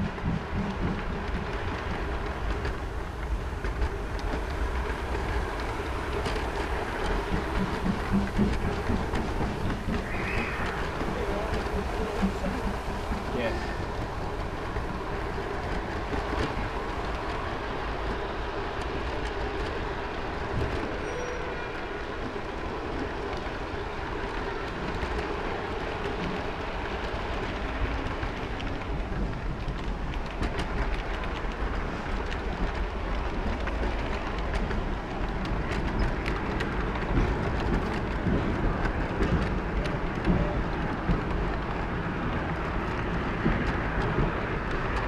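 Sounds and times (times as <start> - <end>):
model train running noise: 0.0 - 45.0
wheels clicking over rail joints: 0.0 - 45.0.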